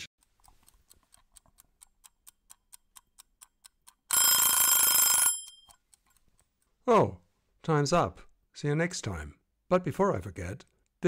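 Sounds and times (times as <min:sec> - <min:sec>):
clock ticking: 0:00.2 - 0:06.8
alarm clock bell ringing: 0:04.1 - 0:05.7.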